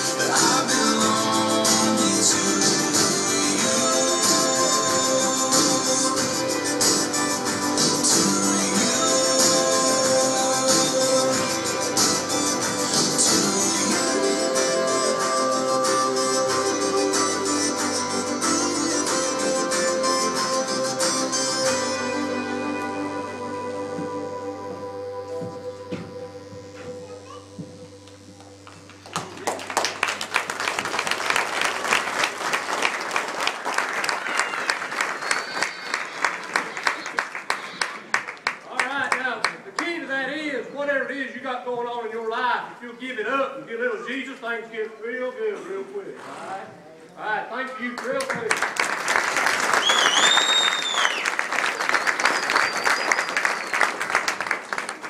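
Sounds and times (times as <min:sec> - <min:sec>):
crowd applauding: 0:28.4 - 0:39.9, 0:48.0 - 0:55.0
audience whistling: 0:29.2 - 0:38.2, 0:48.8 - 0:54.9.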